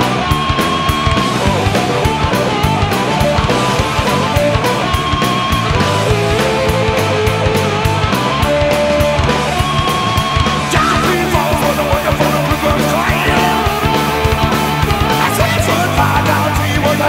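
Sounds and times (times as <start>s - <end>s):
rock band playing: 0.0s - 17.0s
guitar line bending in pitch: 10.7s - 15.2s.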